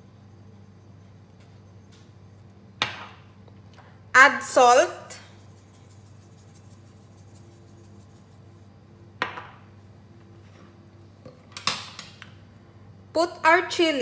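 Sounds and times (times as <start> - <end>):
salt shaker ticking: 5.2 - 8.5.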